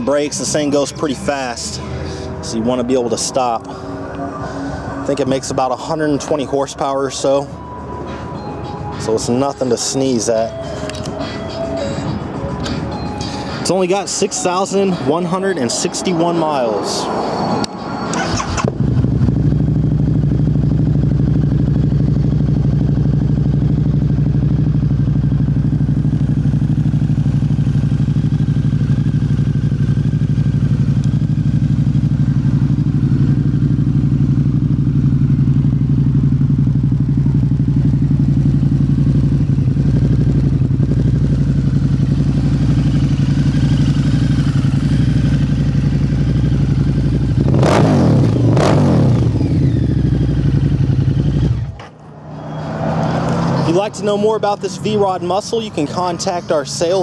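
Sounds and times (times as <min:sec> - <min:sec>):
motorcycle engine starting and idling: 0:18.0 - 0:57.0.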